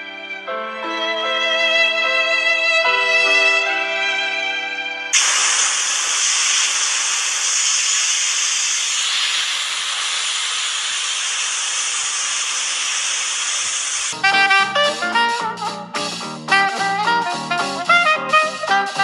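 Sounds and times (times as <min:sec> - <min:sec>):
hose spraying water on cardboard: 0:05.2 - 0:14.2.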